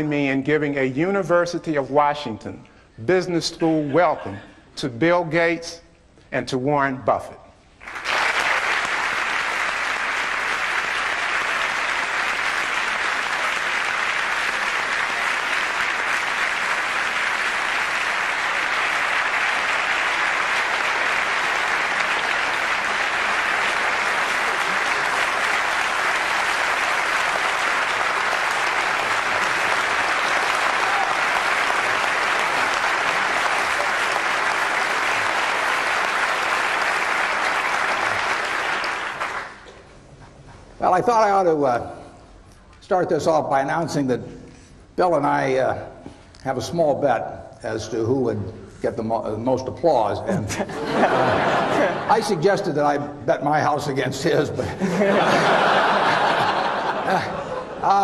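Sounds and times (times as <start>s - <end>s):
large audience applauding: 7.8s - 39.8s, 50.8s - 52.4s, 54.8s - 58.0s.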